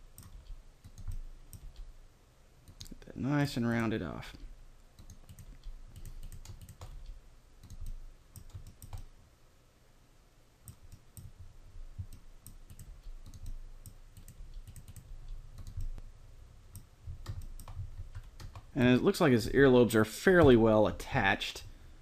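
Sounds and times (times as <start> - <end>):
low steady hum: 0.0 - 22.0
keyboard keystrokes: 16.8 - 18.7.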